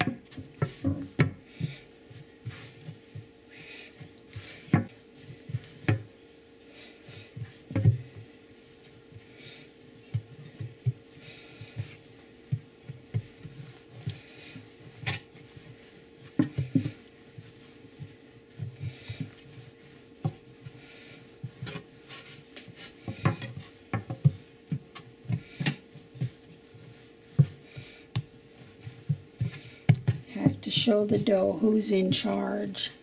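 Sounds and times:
dough thumping on wooden board: 0:23.0 - 0:26.4.

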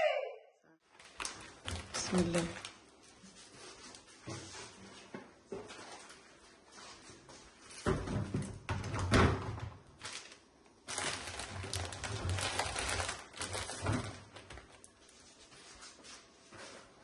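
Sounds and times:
plastic packets crinkling: 0:00.9 - 0:03.0, 0:10.0 - 0:15.0.

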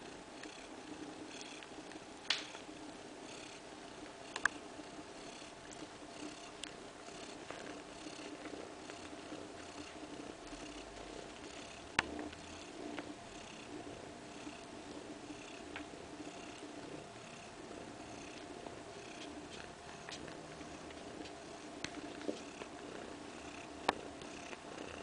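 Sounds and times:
cat purring: 0:00.0 - 0:25.0.

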